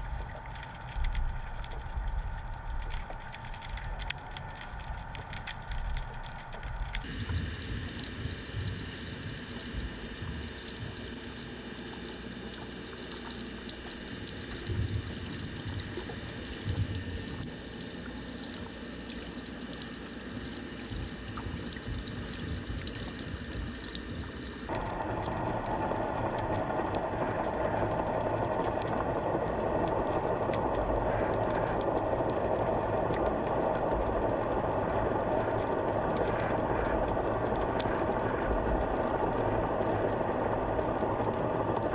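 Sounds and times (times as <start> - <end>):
faint crackling clicks: 0.0 - 41.9
muffled underwater noise: 6.4 - 41.9.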